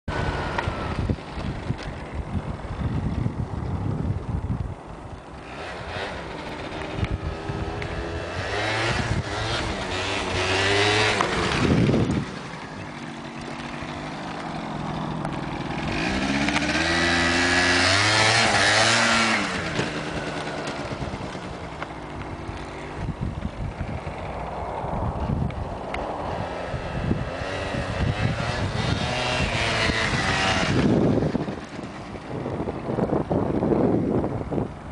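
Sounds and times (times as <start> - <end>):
scooter engine revving: 0.1 - 3.5, 5.2 - 25.3, 26.1 - 34.8.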